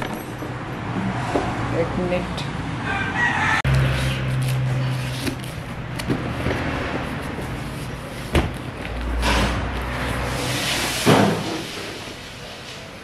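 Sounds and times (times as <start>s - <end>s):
cardboard box rustling and scraping: 4.0s - 10.9s.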